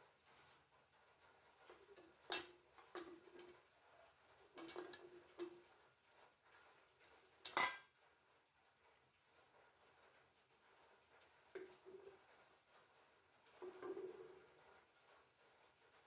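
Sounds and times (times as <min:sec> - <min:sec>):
jar clinking and knocking: 0:07.5 - 0:07.8.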